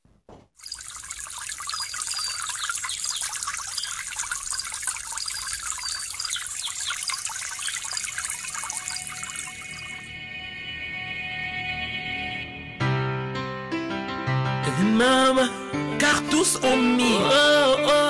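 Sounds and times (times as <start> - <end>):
stream trickling: 0.5 - 10.3
small birds chirping: 1.2 - 10.1.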